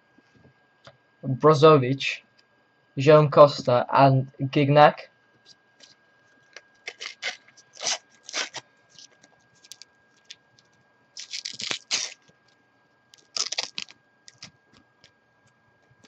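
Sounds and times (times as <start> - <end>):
foil packet crinkling and ripping: 6.8 - 12.3, 13.2 - 14.5.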